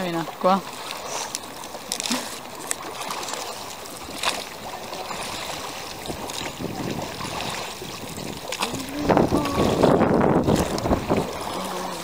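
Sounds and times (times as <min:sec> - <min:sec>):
oars pulling through water: 0:00.0 - 0:12.0
wind on microphone: 0:04.8 - 0:12.0.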